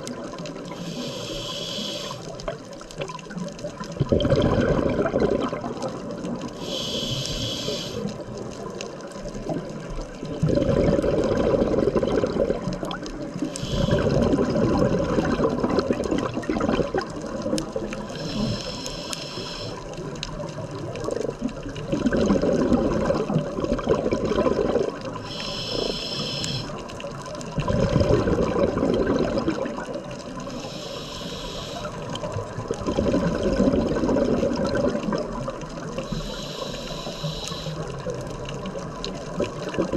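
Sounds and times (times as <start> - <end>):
regulator inhale hiss: 0.7 - 2.5, 6.5 - 8.3, 13.4 - 14.4, 18.0 - 20.0, 25.2 - 26.9, 30.4 - 32.3, 36.0 - 38.2
exhaust bubbles rumbling: 4.0 - 6.4, 10.2 - 18.0, 21.0 - 25.3, 27.6 - 30.3, 32.4 - 36.0.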